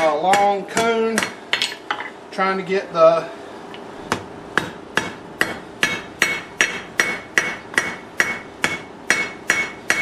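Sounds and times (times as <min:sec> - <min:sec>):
hammer striking hot steel on anvil: 0:00.0 - 0:01.4, 0:04.1 - 0:10.0.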